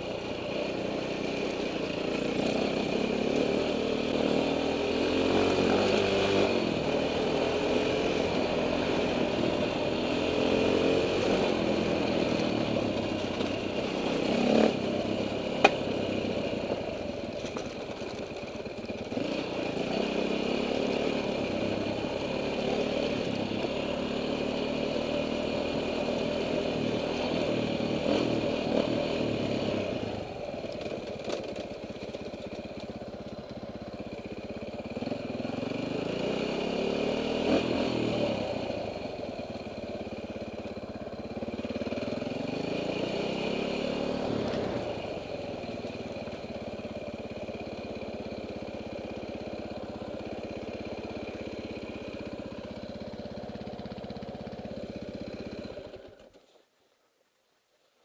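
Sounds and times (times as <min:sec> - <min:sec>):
dirt bike engine revving: 0:01.1 - 0:16.4, 0:19.1 - 0:30.3, 0:34.9 - 0:39.3, 0:41.6 - 0:56.0.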